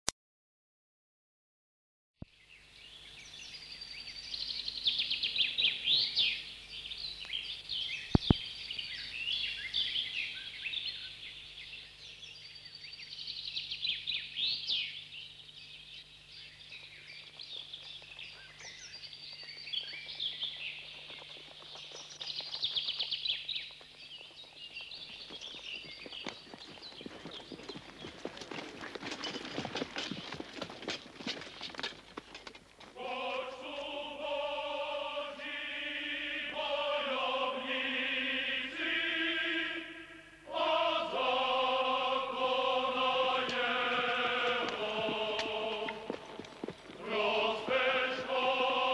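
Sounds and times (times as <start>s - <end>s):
songbirds chirping and trilling: 2.2s - 48.9s
steady low hum: 2.2s - 48.9s
horse hoofbeats: 16.8s - 34.0s, 42.8s - 48.3s.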